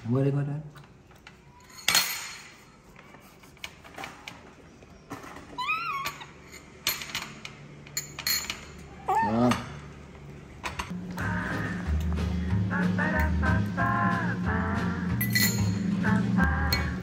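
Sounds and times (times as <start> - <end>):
baby monkey squeak: 5.6 - 6.0.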